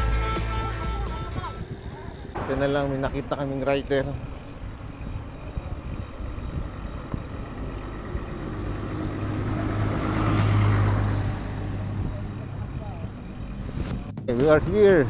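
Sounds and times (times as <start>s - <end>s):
truck passing by: 0.0s - 15.0s.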